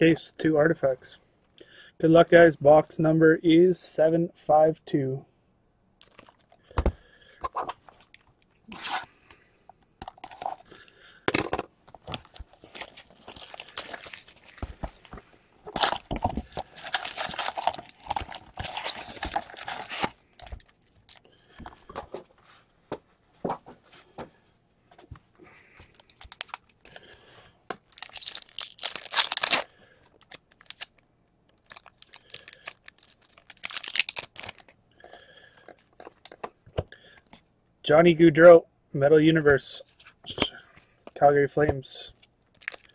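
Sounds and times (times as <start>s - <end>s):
wrappers crinkling: 6.0s - 6.6s, 11.9s - 21.3s, 25.9s - 27.2s, 27.8s - 34.8s, 42.2s - 42.9s
cardboard tearing: 15.7s - 20.6s, 28.0s - 29.7s.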